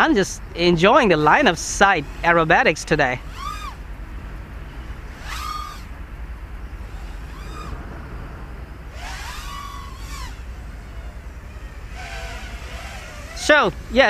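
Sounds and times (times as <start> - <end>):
drone motors whining: 0.0 - 14.0
low rumble: 3.1 - 13.9.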